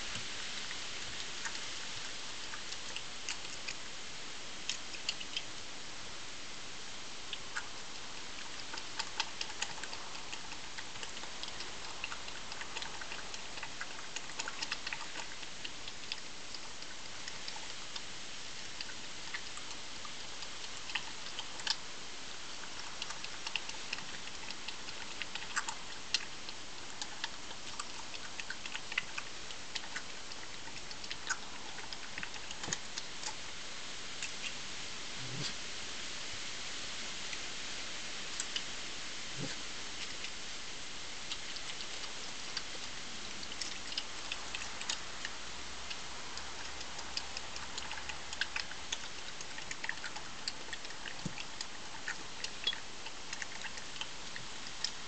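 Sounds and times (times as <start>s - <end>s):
steady hiss: 0.0s - 55.0s
badger crunching food: 7.3s - 34.6s, 41.2s - 55.0s.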